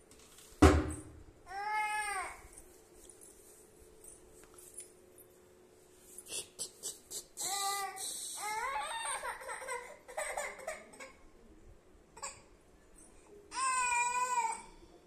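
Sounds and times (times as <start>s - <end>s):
toddler babbling: 1.5s - 2.4s
toddler crying: 1.5s - 2.4s, 7.4s - 11.2s, 13.5s - 14.7s.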